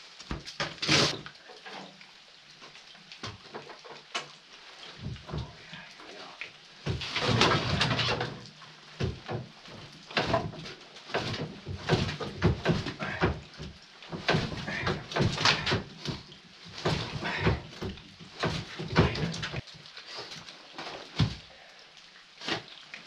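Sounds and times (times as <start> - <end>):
firewood knocking and clunking: 0.2 - 1.2, 2.6 - 4.4, 5.0 - 5.6, 6.8 - 19.7, 20.8 - 21.5.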